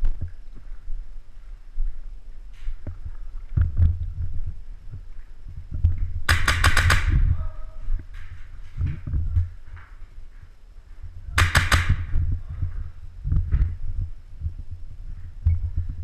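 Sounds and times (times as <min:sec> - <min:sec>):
airsoft rifle burst: 0:06.3 - 0:07.2, 0:11.4 - 0:12.1
footsteps and movement thumps: 0:07.9 - 0:16.0.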